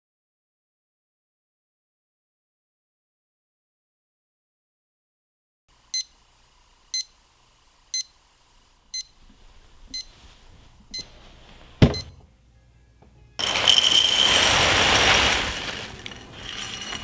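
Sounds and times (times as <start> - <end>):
loud thump: 11.8 - 12.2
alarm clock beeping: 11.9 - 12.2.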